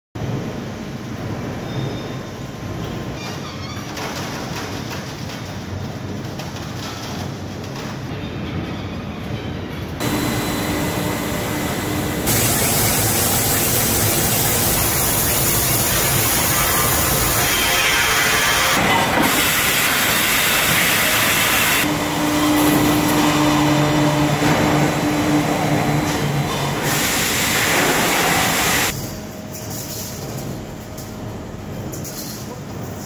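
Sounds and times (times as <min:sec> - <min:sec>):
factory machinery running: 0:00.2 - 0:33.0
steady hum: 0:10.0 - 0:29.4.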